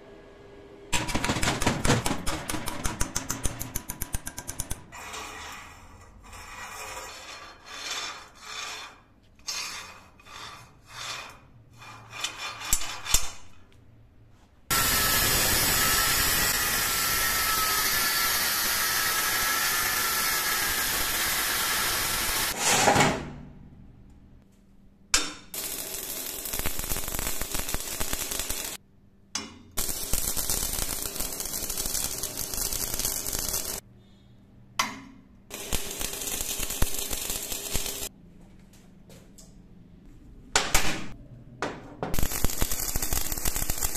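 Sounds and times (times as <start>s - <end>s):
angle grinder cutting steel: 14.7s - 22.6s
noisy metalwork: 14.7s - 23.3s.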